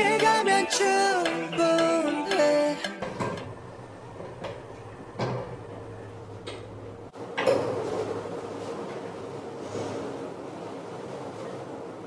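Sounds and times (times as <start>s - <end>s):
steady low hum: 3.0s - 10.8s.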